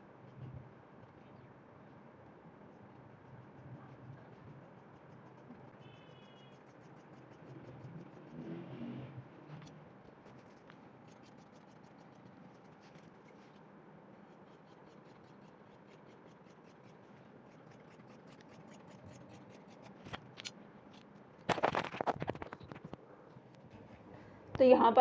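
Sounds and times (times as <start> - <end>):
scissors cutting cloth: 2.9 - 8.5, 9.6 - 13.6, 14.2 - 20.6.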